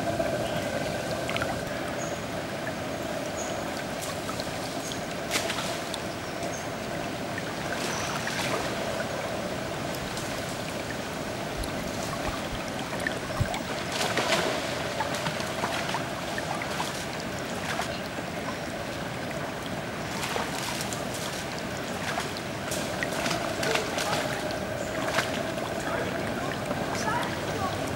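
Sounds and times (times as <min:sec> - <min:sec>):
river water flowing: 0:00.0 - 0:27.9
monkeys splashing into water: 0:13.6 - 0:18.1, 0:20.1 - 0:27.7.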